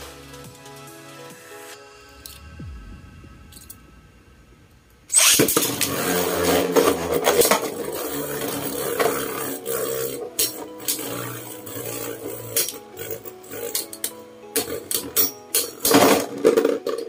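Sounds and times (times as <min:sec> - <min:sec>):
spinning tops whirring: 0:05.1 - 0:17.0
tops clacking together: 0:05.2 - 0:17.0.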